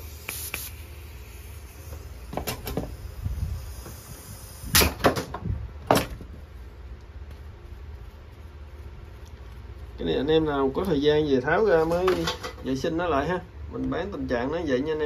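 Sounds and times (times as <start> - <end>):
spray gun clicks and knocks: 1.9 - 3.0.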